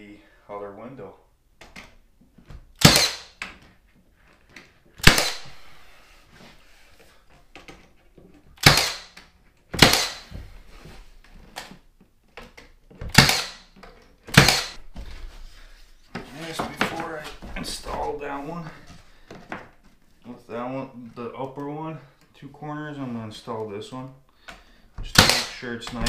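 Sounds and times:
nail gun shots: 0:02.8 - 0:03.4, 0:05.0 - 0:05.5, 0:08.6 - 0:09.2, 0:09.8 - 0:10.3, 0:13.1 - 0:13.7, 0:14.3 - 0:14.8, 0:25.1 - 0:26.0.

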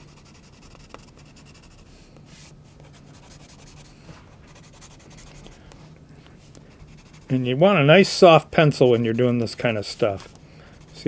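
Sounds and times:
pencil scratching on paper: 0:00.0 - 0:01.9, 0:02.8 - 0:03.9, 0:04.5 - 0:05.5, 0:06.8 - 0:07.5, 0:08.7 - 0:11.0.

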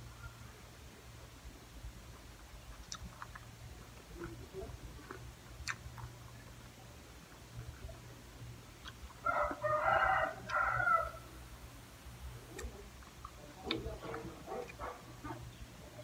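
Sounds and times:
rooster crowing: 0:09.2 - 0:11.3.

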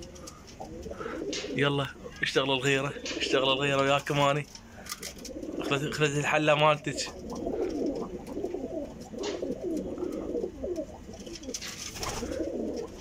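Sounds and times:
pigeons cooing: 0:00.0 - 0:13.0.

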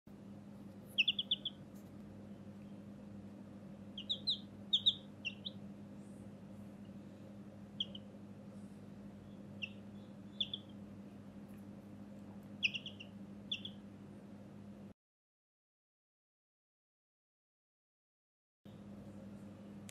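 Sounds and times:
faint low hum: 0:00.1 - 0:15.0, 0:18.7 - 0:19.9
chick peeping: 0:00.8 - 0:02.9, 0:03.9 - 0:05.7, 0:07.7 - 0:08.2, 0:09.1 - 0:11.6, 0:12.2 - 0:13.9.

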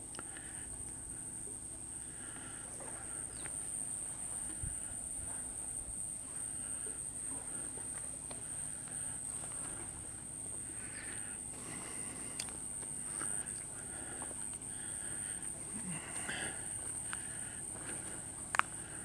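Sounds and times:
insects droning: 0:00.0 - 0:19.0
faint clicks: 0:12.2 - 0:14.7, 0:18.5 - 0:18.8.

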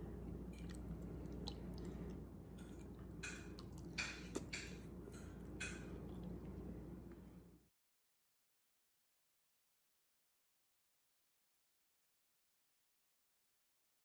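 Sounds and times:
faint steady hum: 0:00.0 - 0:07.7
person chewing food: 0:00.2 - 0:07.3
wet mouth smacking: 0:02.6 - 0:04.8.

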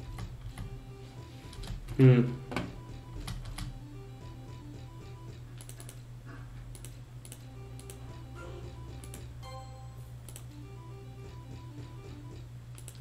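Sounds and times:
looping electronic tune: 0:07.5 - 0:12.3
sharp clicks: 0:10.3 - 0:10.5, 0:12.7 - 0:13.0.

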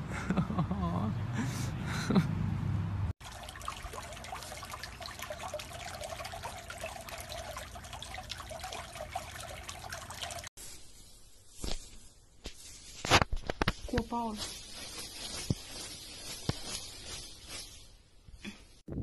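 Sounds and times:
pool water trickling and lapping: 0:03.2 - 0:10.6.

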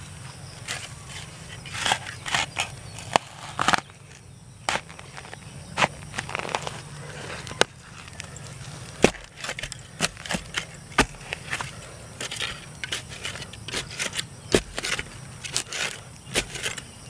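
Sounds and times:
spade scraping: 0:00.5 - 0:17.0
spade striking soil: 0:00.6 - 0:03.9, 0:08.9 - 0:16.9
loose dirt falling: 0:00.6 - 0:17.0.

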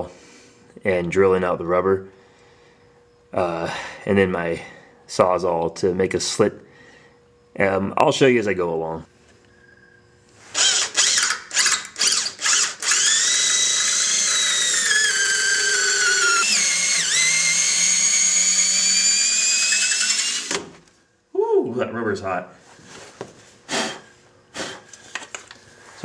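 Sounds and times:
cordless drill boring through rubber: 0:10.5 - 0:20.7.

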